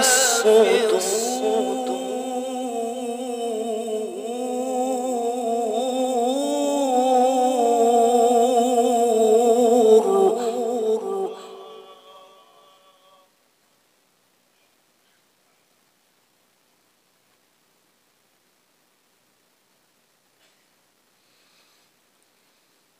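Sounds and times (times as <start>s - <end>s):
man reciting melodically: 0.0s - 13.2s.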